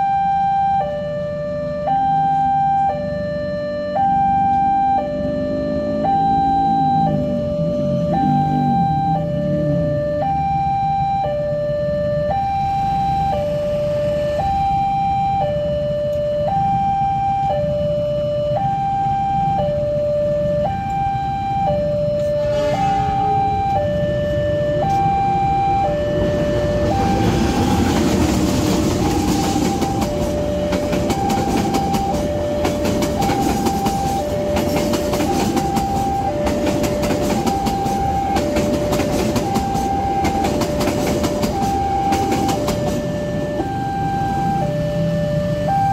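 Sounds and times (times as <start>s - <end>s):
level crossing warning bell: 0.0s - 45.9s
passenger train passing: 3.8s - 10.2s, 12.7s - 14.7s, 19.4s - 45.9s.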